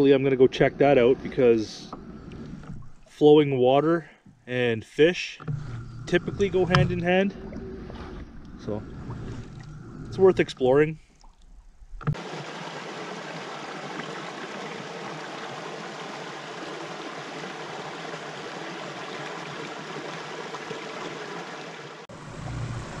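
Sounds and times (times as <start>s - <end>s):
water running over rocks: 12.1s - 22.1s.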